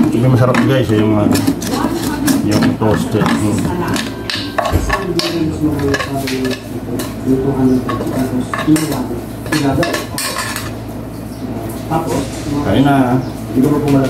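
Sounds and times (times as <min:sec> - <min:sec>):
metal spoon scraping frying pan: 0:00.4 - 0:07.2.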